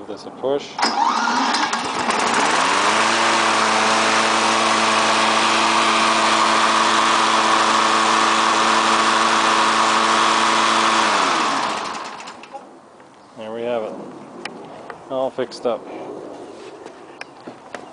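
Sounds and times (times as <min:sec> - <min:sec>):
electric starter: 0:00.8 - 0:12.6
lawnmower engine running: 0:00.8 - 0:12.6.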